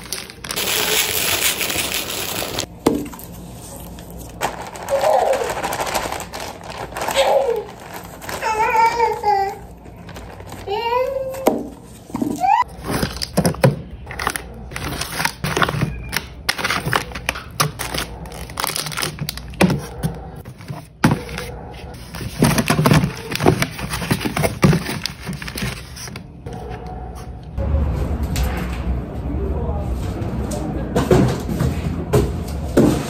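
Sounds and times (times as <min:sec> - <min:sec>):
items knocking and clicking: 0:11.4 - 0:25.8.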